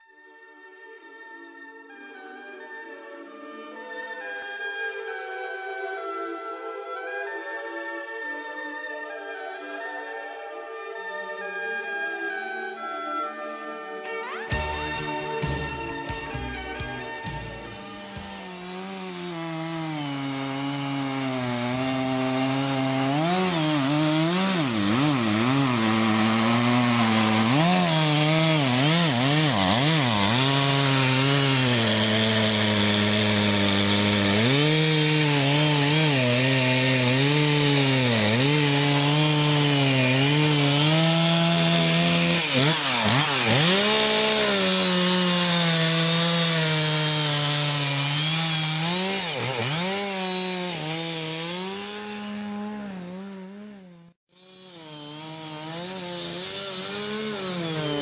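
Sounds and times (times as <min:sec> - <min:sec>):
chainsaw cutting tree trunk: 0:17.2 - 0:58.0.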